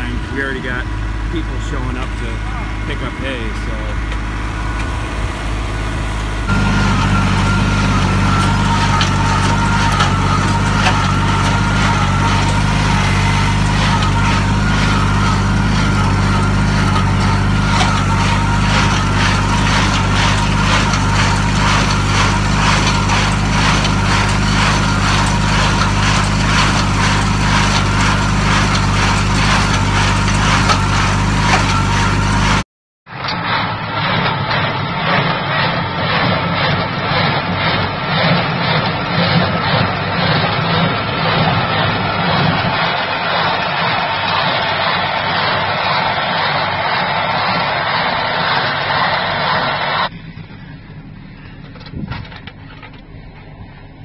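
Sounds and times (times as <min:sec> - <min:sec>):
baler mechanism knocking: 0:00.0 - 0:32.6
drive whine: 0:00.0 - 0:54.0
tractor engine running: 0:00.0 - 0:54.0.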